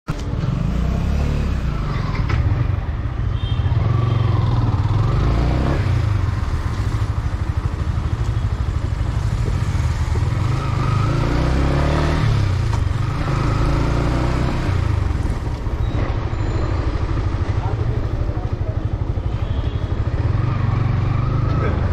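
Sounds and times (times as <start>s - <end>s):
motorcycle engine at low revs: 3.8s - 21.9s.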